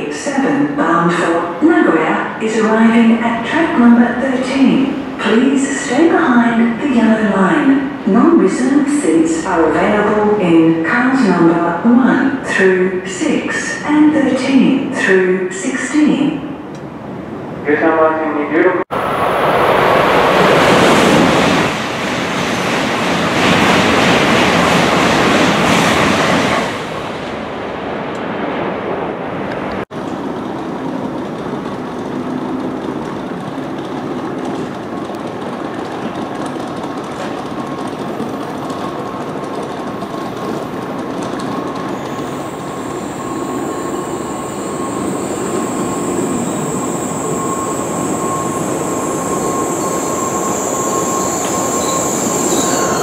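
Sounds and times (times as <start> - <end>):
train running noise: 18.9 - 28.3, 29.4 - 53.0
thin high whine: 42.2 - 53.0.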